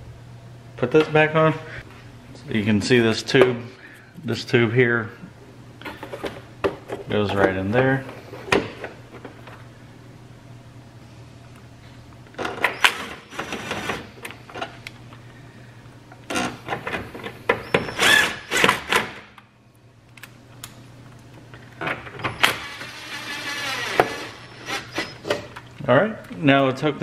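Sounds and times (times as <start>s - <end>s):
cordless drill running: 18.0s - 18.7s, 22.6s - 25.0s.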